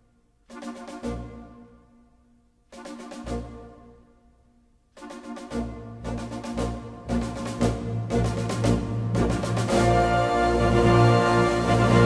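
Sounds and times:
drumbeats: 0:02.7 - 0:03.7, 0:05.0 - 0:12.0
sustained band chords: 0:05.0 - 0:12.0.

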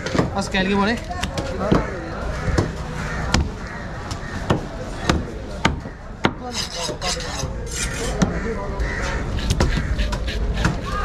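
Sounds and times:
knife scraping strokes: 0:06.5 - 0:08.2.

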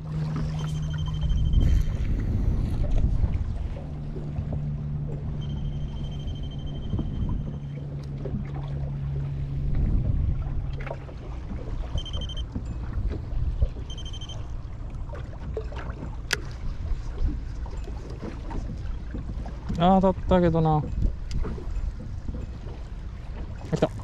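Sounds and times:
steady low hum: 0:00.0 - 0:17.8
water against boat hull: 0:00.0 - 0:24.0
wind: 0:00.0 - 0:24.0
high beeps: 0:00.6 - 0:01.9, 0:05.3 - 0:07.8, 0:11.9 - 0:12.4, 0:13.8 - 0:14.5.

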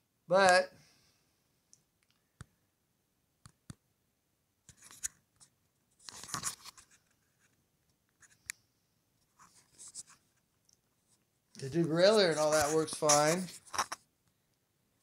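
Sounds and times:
scraping rustle: 0:11.6 - 0:14.0.

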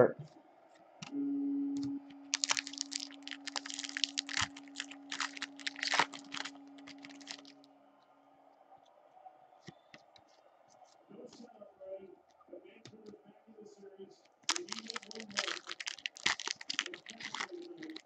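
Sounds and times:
low hum: 0:00.0 - 0:09.9
foil pack crinkling: 0:02.3 - 0:07.6, 0:14.4 - 0:18.0.

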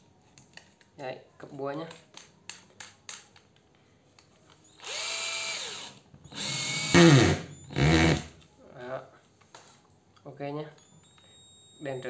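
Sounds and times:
cordless hammer drill running: 0:04.8 - 0:08.2.

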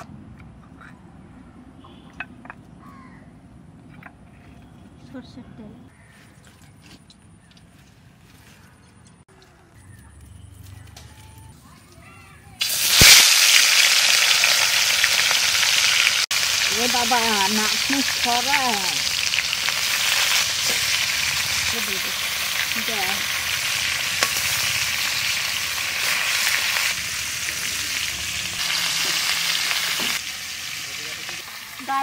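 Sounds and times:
fish sizzling in hot oil: 0:12.6 - 0:32.0.

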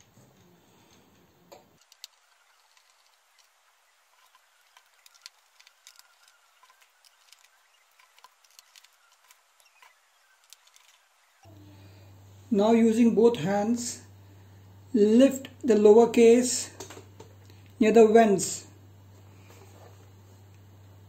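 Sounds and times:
screwdriver clicking and scraping: 0:04.2 - 0:11.0.

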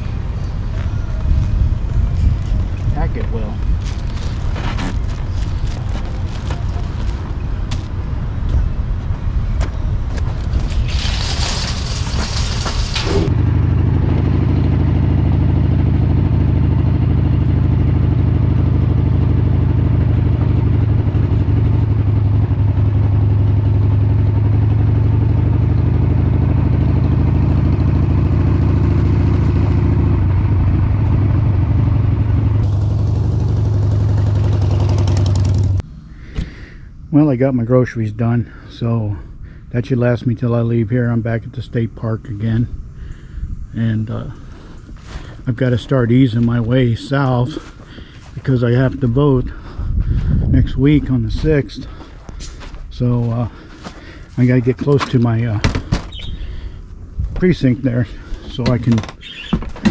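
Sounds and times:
motorcycle engine running: 0:11.0 - 0:35.8.

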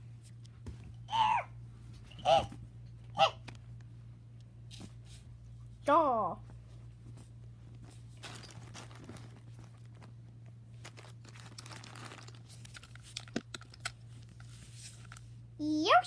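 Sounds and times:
plastic toys rustling and clicking: 0:07.9 - 0:10.2, 0:10.8 - 0:15.3.

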